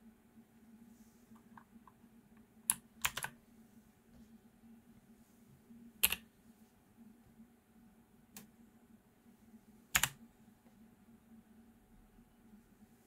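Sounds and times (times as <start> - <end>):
clicky keyboard keys pressed: 2.7 - 3.4, 10.0 - 10.2.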